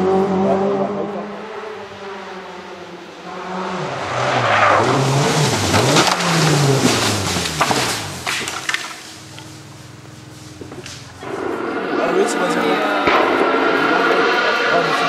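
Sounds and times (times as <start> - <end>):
rally car engine revving: 0.0 - 15.0
sharp cracks: 4.4 - 9.5, 10.7 - 15.0.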